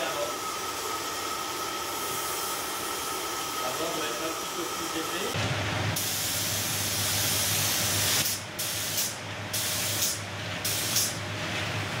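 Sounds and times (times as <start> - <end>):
spray gun hissing: 6.0 - 11.2.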